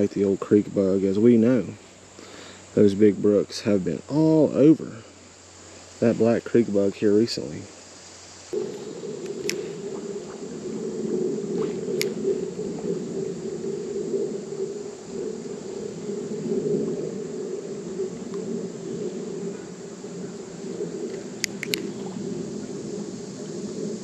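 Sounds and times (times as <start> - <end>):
faint clicks: 8.5 - 10.0, 11.6 - 12.3, 21.1 - 22.1.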